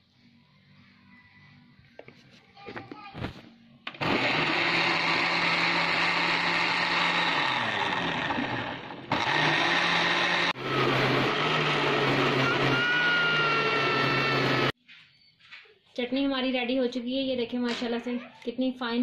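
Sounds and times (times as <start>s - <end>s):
electric blender motor running: 4.0s - 14.8s.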